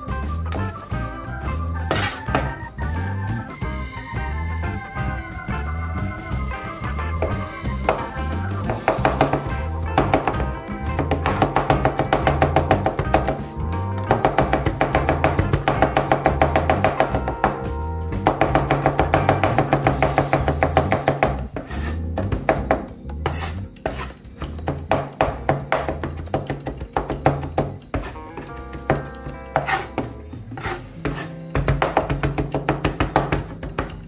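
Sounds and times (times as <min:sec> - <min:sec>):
background music: 0:00.0 - 0:34.0
cleaver chopping on wooden board: 0:01.9 - 0:02.6, 0:08.7 - 0:10.4, 0:11.0 - 0:13.4, 0:14.1 - 0:17.6, 0:18.2 - 0:33.9.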